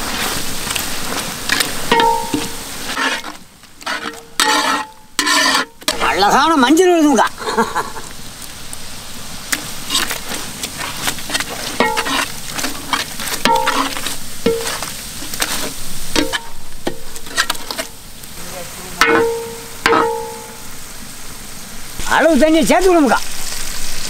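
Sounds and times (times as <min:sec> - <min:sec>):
metal ladle scraping pan: 0:00.0 - 0:06.1, 0:09.5 - 0:18.0, 0:19.0 - 0:20.7
food sizzling in oil: 0:00.0 - 0:24.0
ladle knocking against pan: 0:13.4 - 0:14.9, 0:19.0 - 0:20.6.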